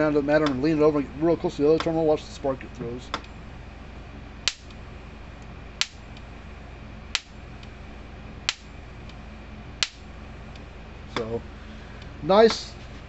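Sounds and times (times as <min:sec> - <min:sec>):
electric fence spark snaps: 0:04.4 - 0:04.8, 0:05.4 - 0:06.3, 0:07.1 - 0:07.8, 0:08.4 - 0:09.2, 0:09.8 - 0:10.7.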